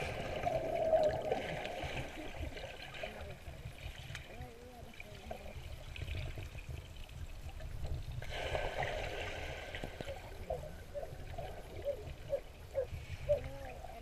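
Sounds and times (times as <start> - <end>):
underwater pool sloshing: 0.0 - 13.8.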